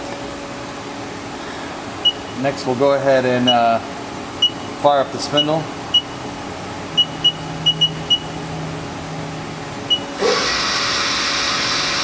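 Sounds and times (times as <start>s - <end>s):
short high keypad beeps: 2.0s - 2.2s, 4.4s - 4.7s, 5.4s - 6.2s, 7.0s - 8.3s, 9.9s - 10.1s
machine spindle whirring: 9.9s - 12.0s.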